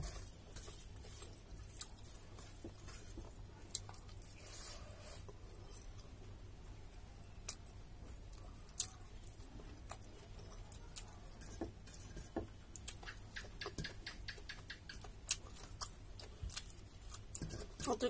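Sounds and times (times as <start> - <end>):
fingers mixing rice on steel plate: 0.0 - 6.0, 7.4 - 18.0
chewing clicks and smacks: 12.7 - 17.4.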